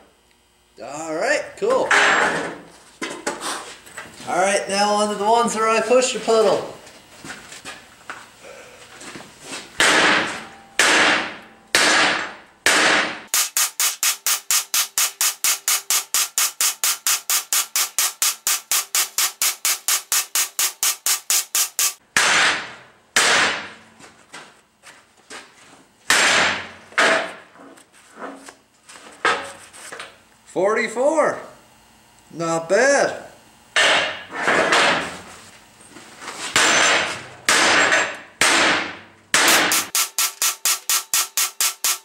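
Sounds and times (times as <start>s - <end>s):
hammer striking steel: 9.8s - 23.7s, 33.8s - 34.2s, 36.6s - 42.0s.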